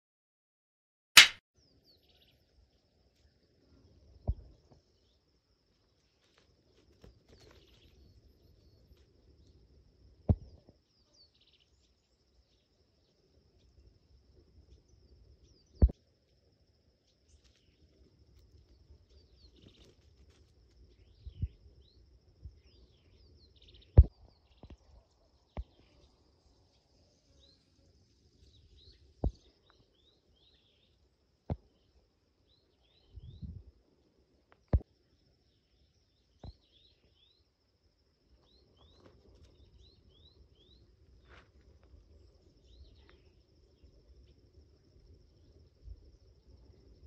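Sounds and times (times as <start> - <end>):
sharp knocks: 1.2 - 1.4
small birds chirping faintly: 1.6 - 47.0.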